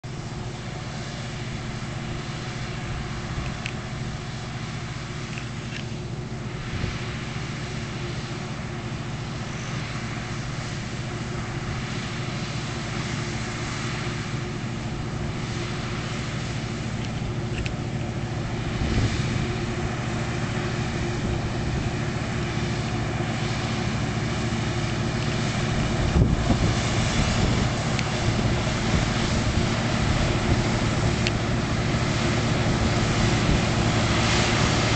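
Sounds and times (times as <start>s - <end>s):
combine harvester running: 0.0s - 34.9s
wind buffeting microphone: 17.1s - 23.2s, 24.6s - 34.9s.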